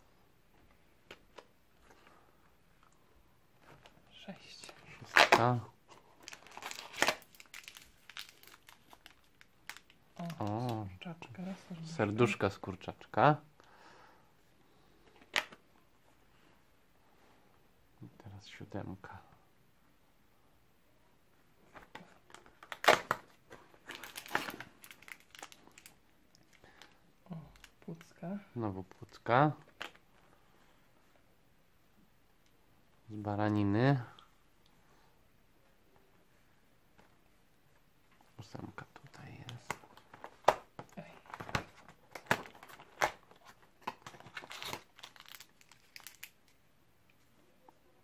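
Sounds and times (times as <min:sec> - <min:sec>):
foil packet crinkling: 0:06.1 - 0:10.8, 0:23.8 - 0:28.1, 0:42.1 - 0:46.6.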